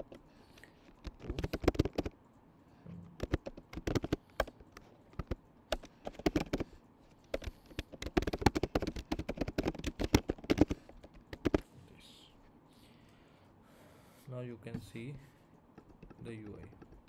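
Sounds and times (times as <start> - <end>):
keyboard typing: 0.0 - 2.2, 3.2 - 11.6, 15.7 - 17.0.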